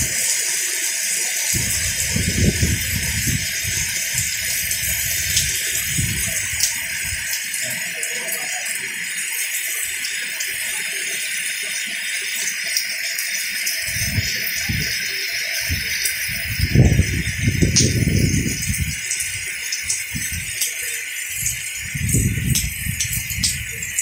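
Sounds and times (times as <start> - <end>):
heavy rain falling: 0.0 - 24.0
low rumble gusts: 1.6 - 7.3, 15.7 - 19.0, 21.8 - 23.8.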